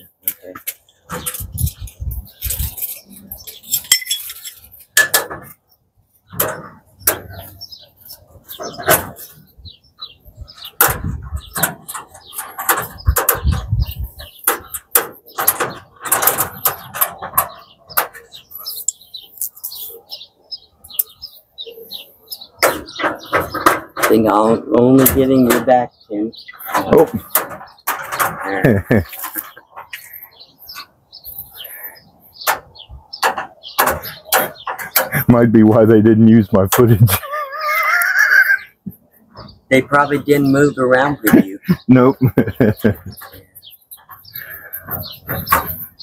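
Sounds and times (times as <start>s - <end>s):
metal parts clanking and rattling: 1.1s - 5.6s, 10.6s - 18.4s, 26.6s - 29.6s.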